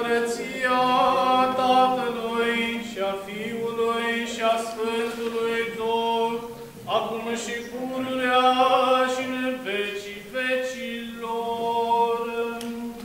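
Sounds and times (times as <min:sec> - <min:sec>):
male voice chanting: 0:00.0 - 0:13.0.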